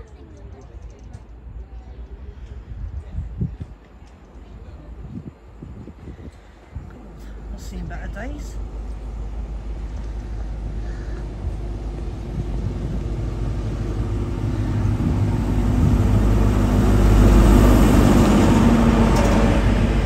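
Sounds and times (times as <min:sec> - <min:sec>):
train rumbling past: 0:00.0 - 0:20.0
diesel engine drone: 0:04.9 - 0:20.0.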